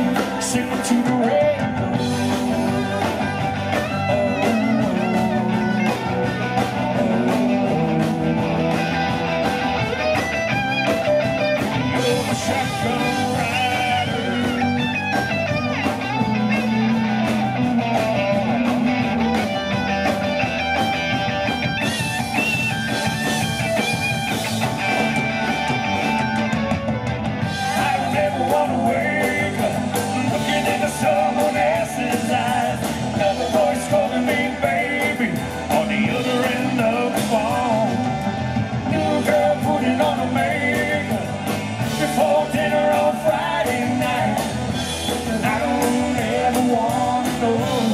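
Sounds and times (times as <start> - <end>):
person singing: 0.0 - 9.2, 11.7 - 19.7, 27.6 - 47.9
drums: 0.0 - 47.9
guitars: 0.0 - 47.9
keyboard: 0.0 - 47.9.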